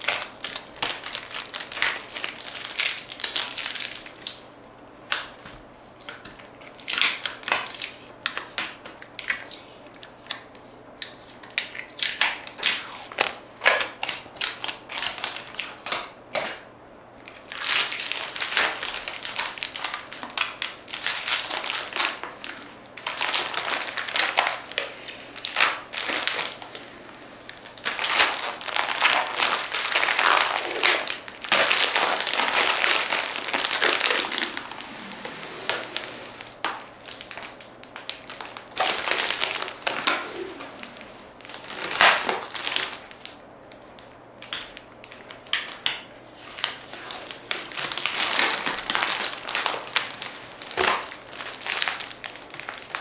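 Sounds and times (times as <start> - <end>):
crinkling and crunching when crumpled: 0.0 - 4.5, 17.2 - 53.0.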